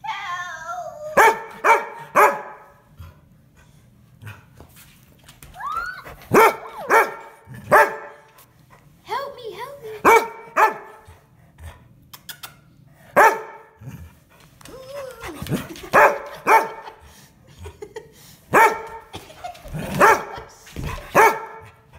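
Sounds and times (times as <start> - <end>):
dog barking: 1.2 - 2.7, 6.3 - 8.3, 10.0 - 11.0, 13.2 - 13.7, 16.0 - 16.9, 18.5 - 19.0, 20.0 - 20.4, 21.1 - 21.7.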